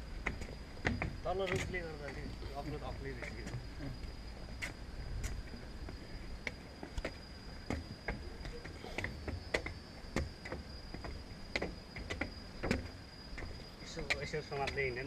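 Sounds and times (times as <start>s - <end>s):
high-pitched insect drone: 0.0s - 15.0s
footsteps on wooden stairs: 0.2s - 2.3s, 4.6s - 14.9s.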